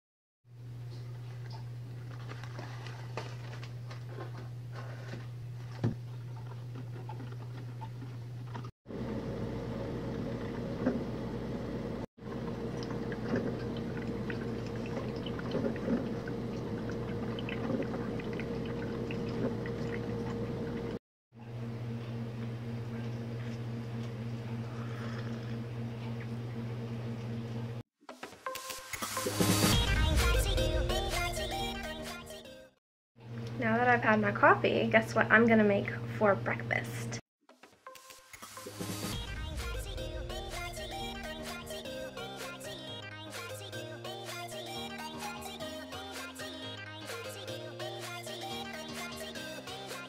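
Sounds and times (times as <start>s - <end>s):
kitchen appliance electrical hum: 0.5s - 27.8s, 33.2s - 37.2s.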